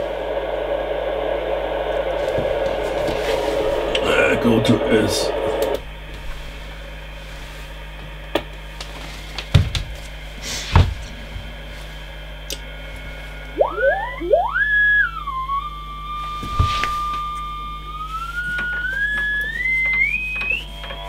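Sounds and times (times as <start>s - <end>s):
faint steady hum: 0.0s - 21.0s
test tone from speaker: 13.6s - 20.8s
whistle gliding up in pitch: 13.6s - 21.0s.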